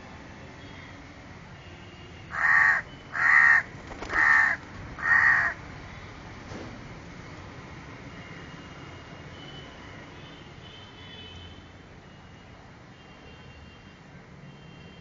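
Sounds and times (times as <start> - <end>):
crow cawing: 2.3 - 5.6.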